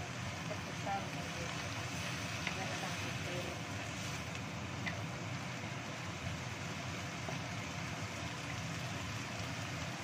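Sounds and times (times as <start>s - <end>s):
vegetables sizzling in a wok: 0.0s - 10.0s
wooden spatula stirring: 0.9s - 5.0s.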